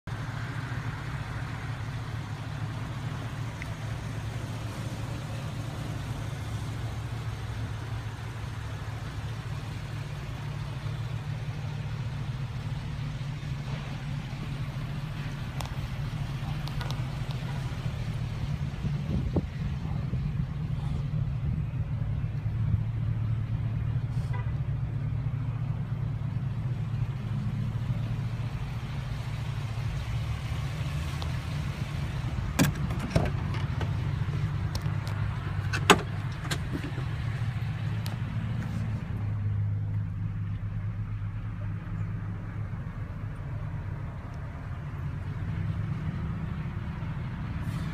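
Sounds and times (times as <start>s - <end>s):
truck engine idling: 0.0s - 47.9s
truck door opening clicks: 32.5s - 34.0s, 34.7s - 37.1s.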